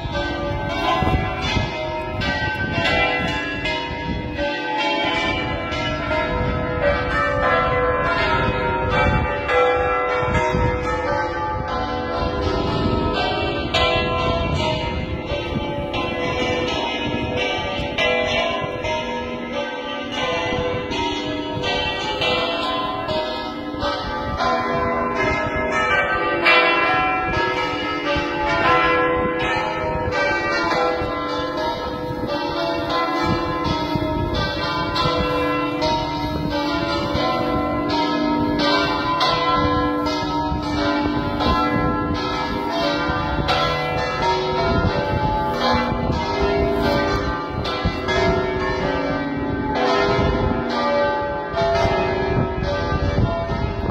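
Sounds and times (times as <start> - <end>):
church bells pealing together: 0.0 - 53.9.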